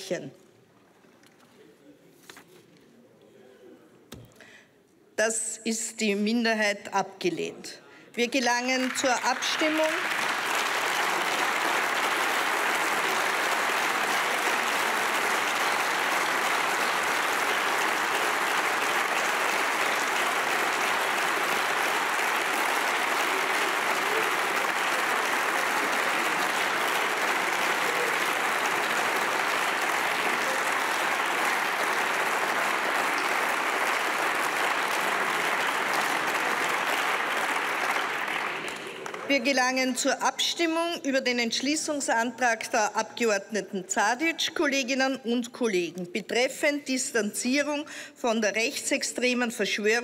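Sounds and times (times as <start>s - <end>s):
crowd applauding: 8.8s - 39.4s.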